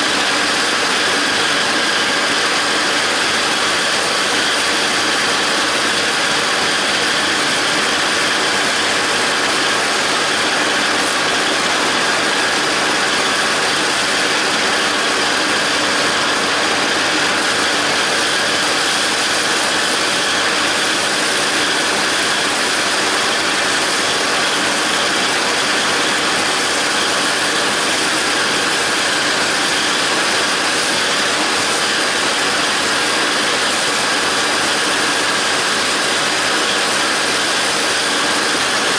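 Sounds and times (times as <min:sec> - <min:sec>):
disc mower running: 0:00.0 - 0:38.9
tractor diesel engine: 0:00.0 - 0:38.9.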